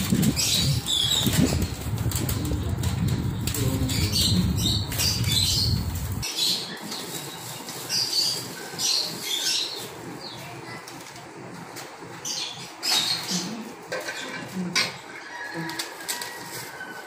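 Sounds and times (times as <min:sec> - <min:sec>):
low rumble: 0:00.0 - 0:06.2
plastic bags and foil crinkling: 0:00.0 - 0:12.3, 0:13.0 - 0:17.0.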